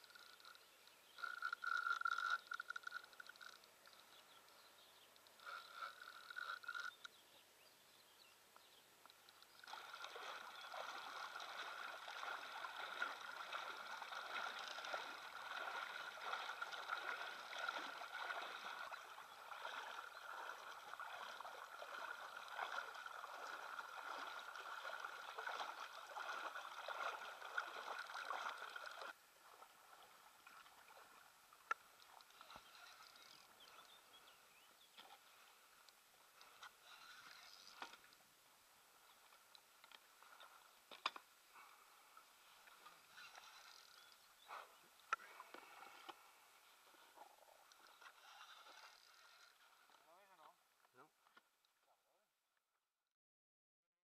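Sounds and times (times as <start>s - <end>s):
water rushing and splashing: 9.6s - 33.0s.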